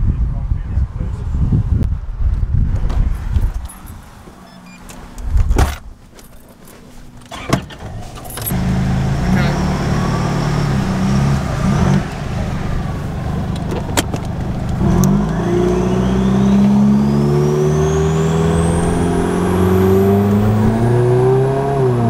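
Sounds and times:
diesel engine accelerating: 0:07.3 - 0:22.0.

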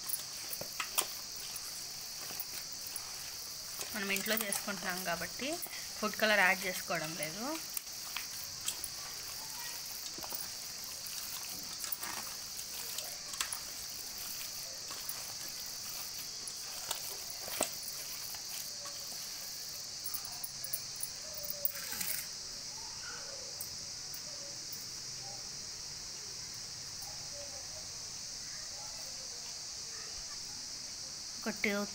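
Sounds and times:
hand squelching marinade in bowl: 0:00.0 - 0:19.8.

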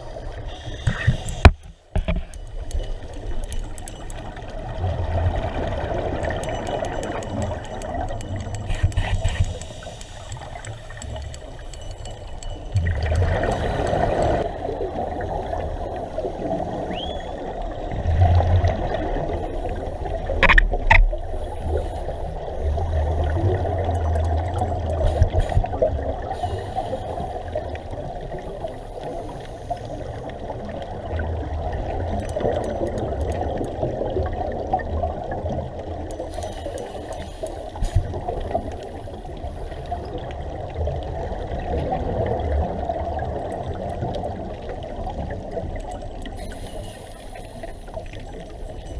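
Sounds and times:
scuba regulator bubbles gurgling: 0:00.0 - 0:48.9
sharp clicks: 0:00.6 - 0:04.5, 0:06.0 - 0:14.4.

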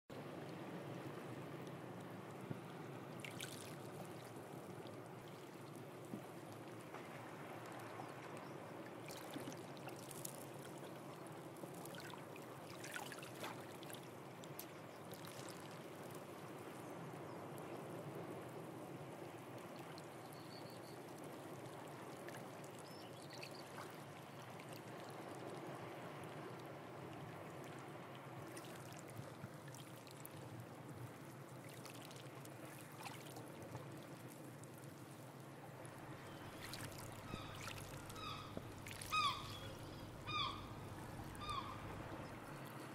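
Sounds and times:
water lapping among rocks: 0:35.8 - 0:42.4.

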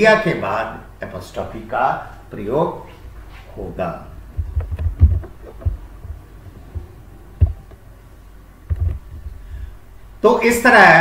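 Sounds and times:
steady low hum: 0:00.0 - 0:11.0
dull low thumps: 0:04.1 - 0:09.9.

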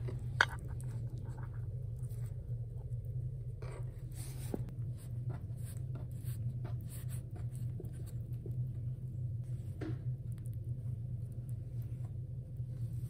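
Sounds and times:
low steady hum: 0:00.0 - 0:13.0
hands rolling dough on a board: 0:03.6 - 0:08.8.

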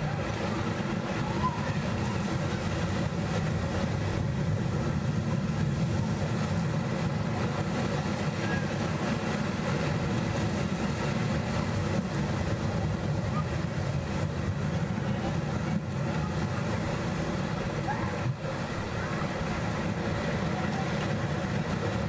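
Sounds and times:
surf washing over rocks: 0:00.0 - 0:22.0.

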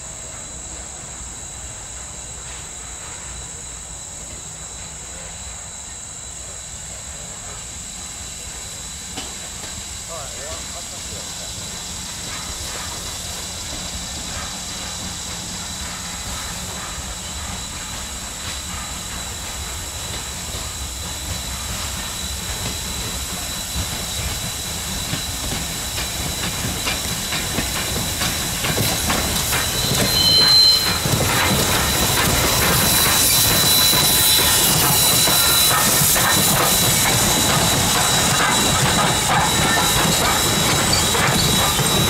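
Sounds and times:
steam hiss: 0:00.0 - 0:42.0
steam locomotive exhaust chuffs: 0:00.0 - 0:42.0
high squeal: 0:22.0 - 0:42.0.

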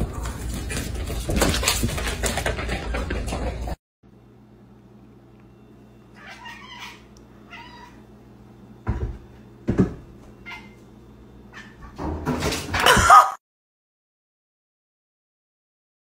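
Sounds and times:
cat meowing: 0:06.2 - 0:08.0.

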